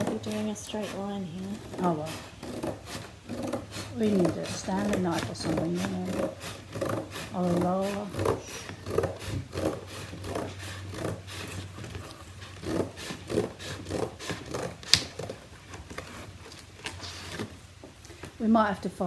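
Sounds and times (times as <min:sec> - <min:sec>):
paper rustle: 0:15.1 - 0:18.4.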